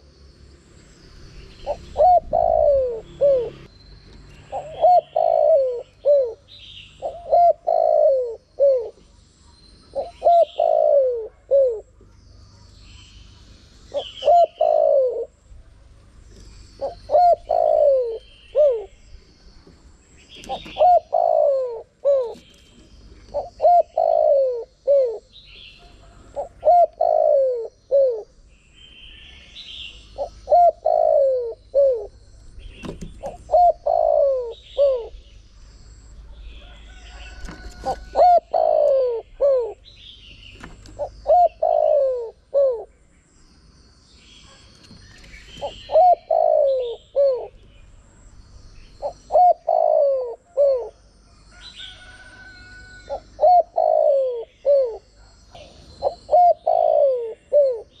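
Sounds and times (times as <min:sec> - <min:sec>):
dove cooing: 0:01.6 - 0:03.7, 0:04.4 - 0:09.2, 0:09.9 - 0:12.1, 0:13.4 - 0:15.5, 0:16.3 - 0:19.0, 0:20.4 - 0:28.4, 0:29.8 - 0:35.4, 0:36.0 - 0:39.9, 0:40.7 - 0:43.0, 0:45.5 - 0:47.6, 0:48.9 - 0:58.0.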